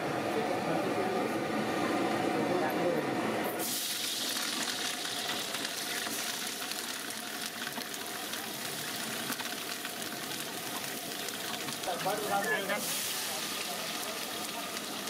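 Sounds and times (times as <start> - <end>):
chillies sizzling in hot oil: 3.6 - 15.0.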